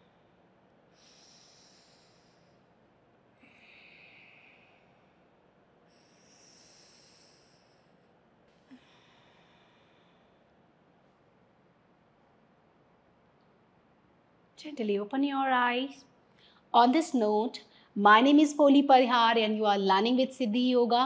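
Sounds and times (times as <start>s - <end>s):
slow breathing through nose: 0.9s - 10.6s.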